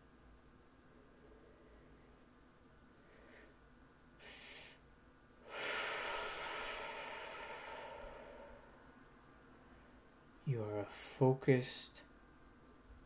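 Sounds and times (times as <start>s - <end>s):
person breathing: 2.9s - 4.8s, 5.4s - 9.0s.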